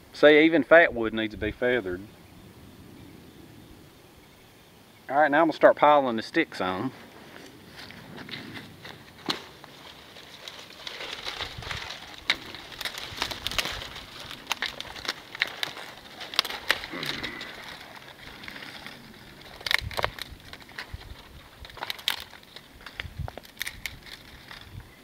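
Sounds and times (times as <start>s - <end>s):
fire crackling: 0.0s - 25.0s
twigs rustling and snapping: 7.0s - 25.0s.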